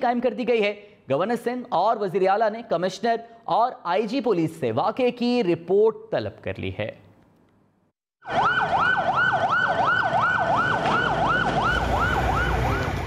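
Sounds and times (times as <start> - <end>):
ambulance siren yelping: 8.2 - 13.0.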